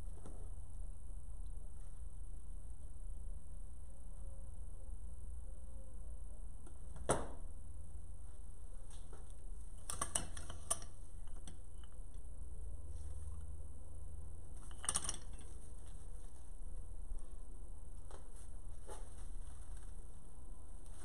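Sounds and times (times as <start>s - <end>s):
steady low hum: 0.0s - 21.0s
artificial flower stems rustling: 14.4s - 21.0s.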